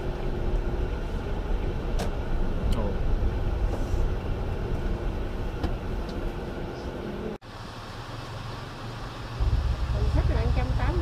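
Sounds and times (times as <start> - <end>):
car engine and road rumble: 0.0 - 11.0.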